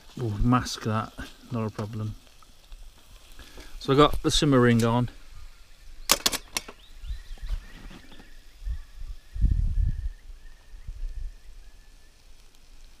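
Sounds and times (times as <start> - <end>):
faint bird song: 4.3 - 12.6.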